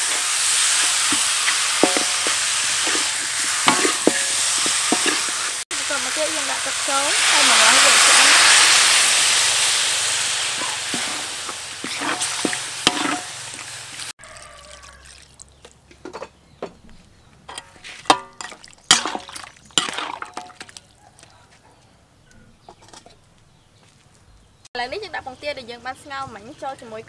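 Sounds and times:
metal spoon scraping wok: 0.0s - 14.1s, 17.5s - 19.2s
meat sizzling in a wok: 0.0s - 15.0s.

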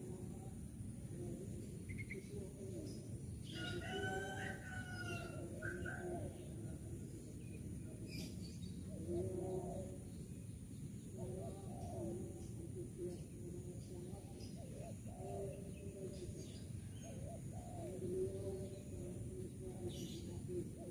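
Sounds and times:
low background noise: 0.0s - 20.9s
rooster crowing: 3.5s - 5.6s.

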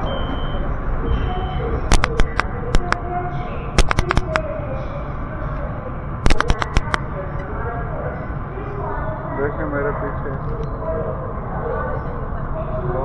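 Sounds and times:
sharp clicks and clacks: 1.9s - 3.0s, 3.8s - 4.4s, 6.2s - 7.0s.

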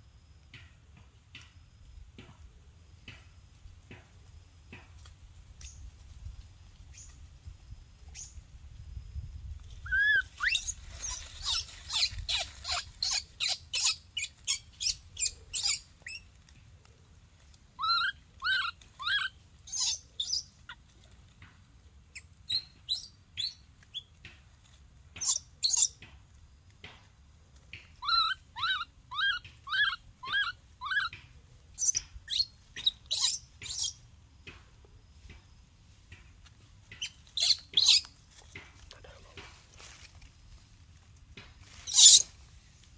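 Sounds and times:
baby monkey crying: 9.9s - 15.8s, 17.8s - 20.4s, 28.0s - 31.2s.

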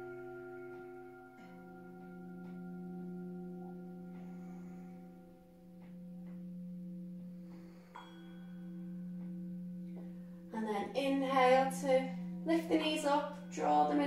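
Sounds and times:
ambient drone music: 0.0s - 14.0s
woman's voice: 10.5s - 14.0s.

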